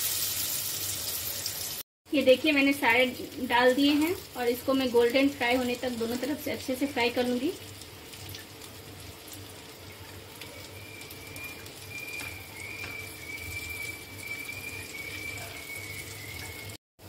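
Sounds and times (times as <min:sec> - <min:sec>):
food sizzling in oil: 0:00.0 - 0:16.8
spatula turning food in pan: 0:03.7 - 0:16.1
thin high whistle: 0:10.6 - 0:16.8.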